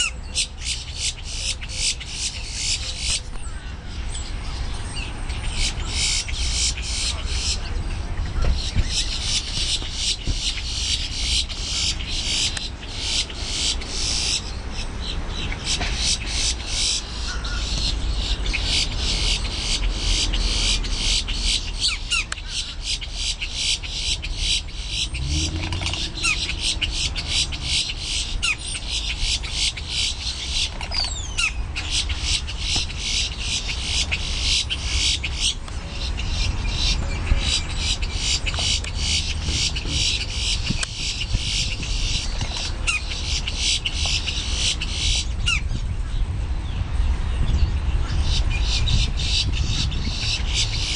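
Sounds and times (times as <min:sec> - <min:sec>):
grackle calls: 0:15.5 - 0:35.6.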